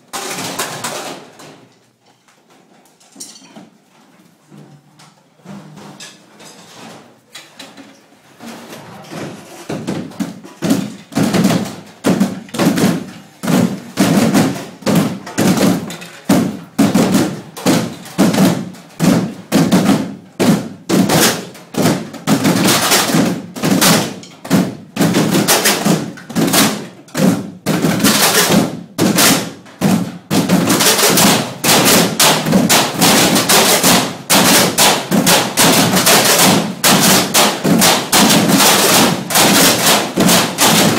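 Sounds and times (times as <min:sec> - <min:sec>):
metal trash cans drummed: 0:00.0 - 0:01.7, 0:08.4 - 0:40.9.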